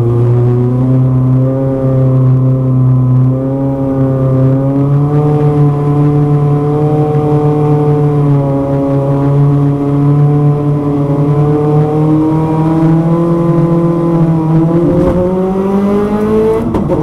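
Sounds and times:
car engine running at low revs: 0.0 - 17.0.

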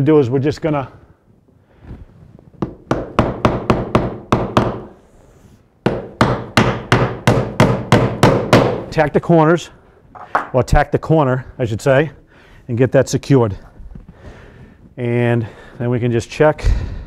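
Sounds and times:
hammer driving a nail: 2.6 - 5.0, 5.8 - 8.9.

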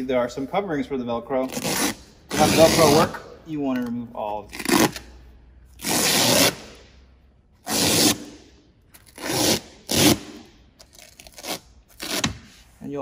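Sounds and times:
velcro strips ripping: 1.4 - 3.1, 4.5 - 5.2, 5.8 - 6.8, 7.6 - 8.4, 9.0 - 12.3.

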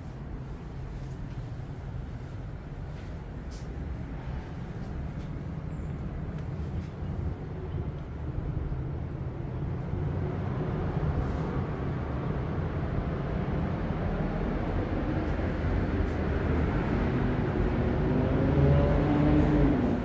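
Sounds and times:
city traffic rumble: 0.0 - 20.0
faint engine hum: 0.0 - 20.0.

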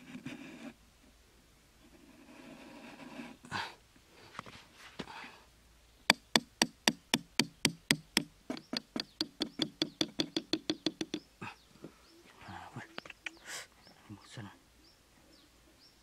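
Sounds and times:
small hammer striking metal: 6.1 - 11.2.

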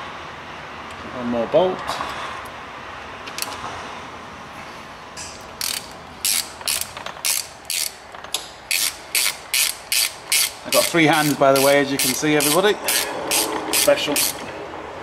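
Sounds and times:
ratchet wrench clicking: 5.6 - 14.4.

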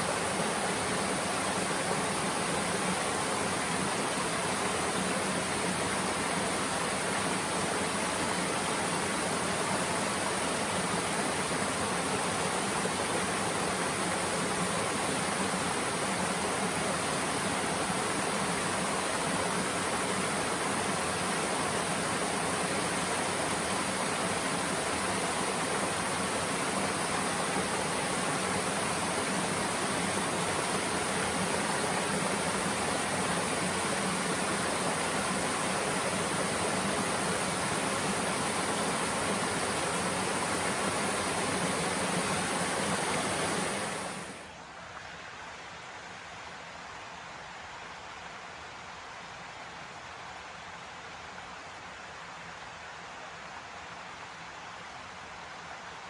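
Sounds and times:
waterfall rushing: 0.0 - 44.6.

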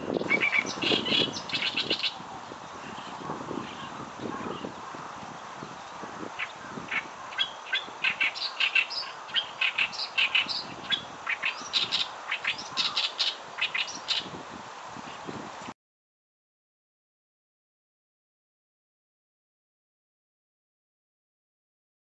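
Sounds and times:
reed warbler singing: 0.0 - 15.6.

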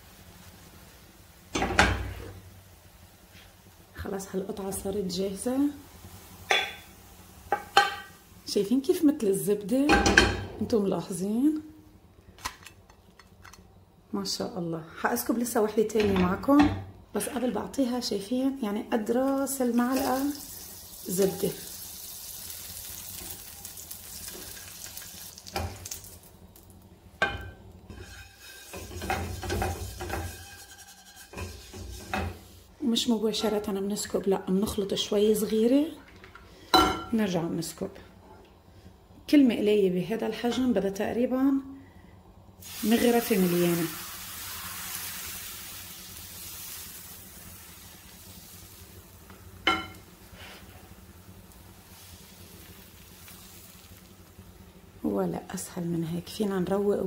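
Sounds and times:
butter sizzling in frying pan: 0.0 - 10.4, 18.6 - 34.1, 42.6 - 55.7
utensil scraping and clinking: 27.2 - 32.4.

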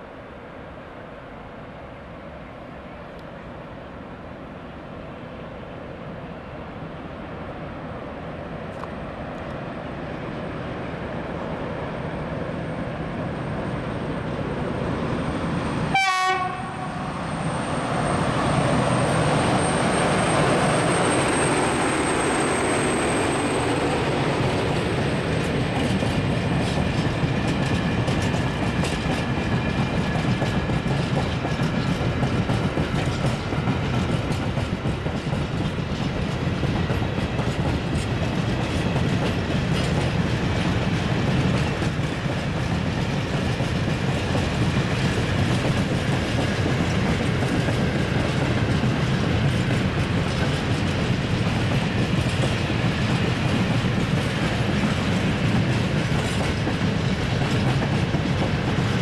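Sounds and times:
diesel locomotive passing: 0.0 - 59.0
train wagons rumbling: 11.2 - 59.0
wheels clacking over rail joints: 18.7 - 59.0.

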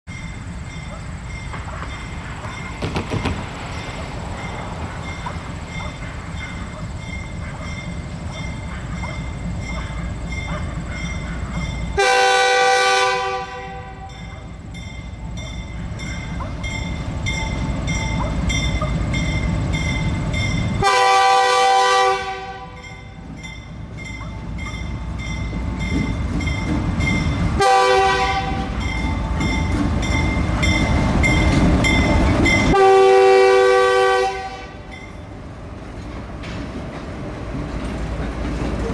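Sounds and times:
diesel locomotive engine rumble: 0.1 - 38.9
train air horn blasts: 12.0 - 14.4, 20.8 - 23.0, 27.6 - 28.8, 32.7 - 34.9.

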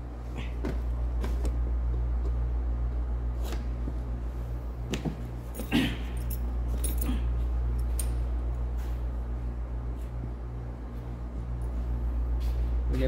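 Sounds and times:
steady low hum: 0.0 - 13.0
small metal parts clinking: 5.5 - 7.2.

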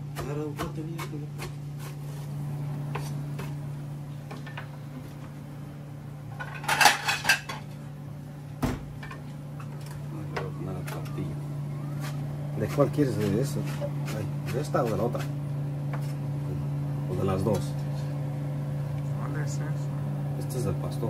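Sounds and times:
low hum: 2.2 - 21.0
utensils clinking against dishes: 6.3 - 7.8.

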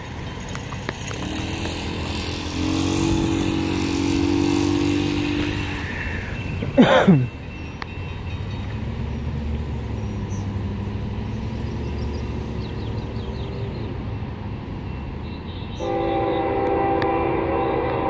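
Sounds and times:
train rumble: 0.0 - 18.0
train horn chord: 2.1 - 5.6, 15.8 - 18.0.

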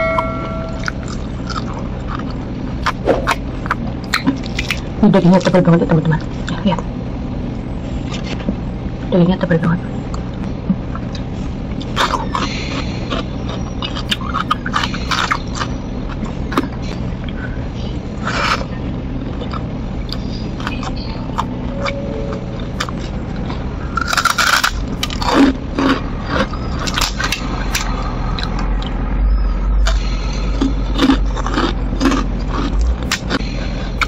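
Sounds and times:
chewing with wet mouth clicks: 0.8 - 5.6, 10.1 - 17.4, 19.3 - 22.0, 22.6 - 29.0, 29.8 - 34.0
crisp crunches: 22.7 - 27.9.

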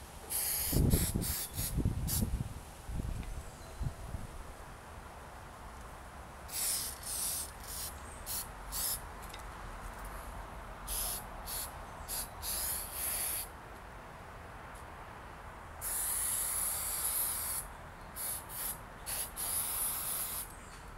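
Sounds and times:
aerosol spray hissing: 0.3 - 2.3, 6.5 - 9.0, 10.9 - 13.5, 15.8 - 17.6, 18.2 - 20.5.

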